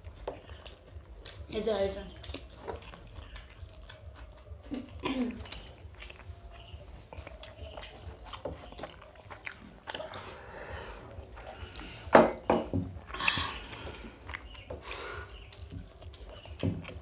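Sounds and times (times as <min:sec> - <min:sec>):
fingers squishing rice: 0:00.0 - 0:12.0
low steady hum: 0:00.0 - 0:17.0
person chewing with wet clicks: 0:00.0 - 0:17.0.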